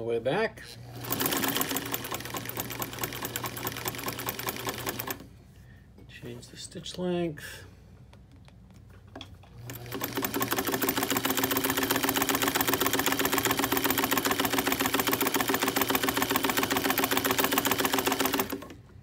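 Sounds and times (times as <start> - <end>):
sewing machine motor hum: 0.6 - 5.3, 9.5 - 18.9
sewing machine needle clattering: 0.9 - 5.2, 9.6 - 18.8.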